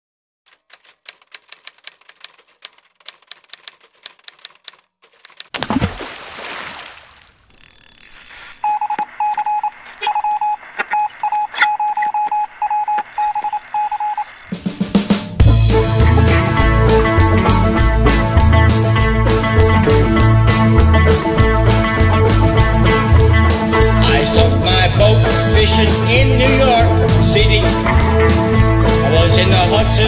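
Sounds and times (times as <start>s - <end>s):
rapid typewriter-like clicks: 0.5s - 5.6s, 12.9s - 15.1s, 16.0s - 18.4s
short high electronic beeps: 8.4s - 14.7s.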